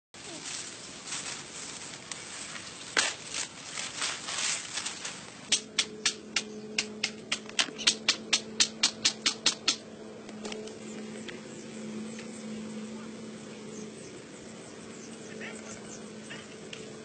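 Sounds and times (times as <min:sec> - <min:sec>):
stone tool tapping bamboo: 0:05.5 - 0:09.8.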